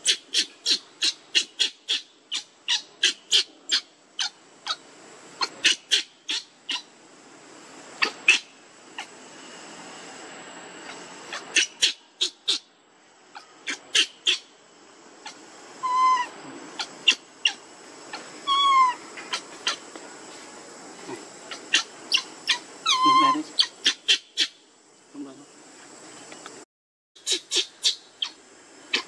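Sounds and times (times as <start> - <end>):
baby monkey crying: 0.0 - 4.8, 5.4 - 6.9, 8.0 - 9.1, 10.9 - 12.7, 13.3 - 14.5, 15.2 - 19.8, 21.5 - 24.6, 27.2 - 29.0.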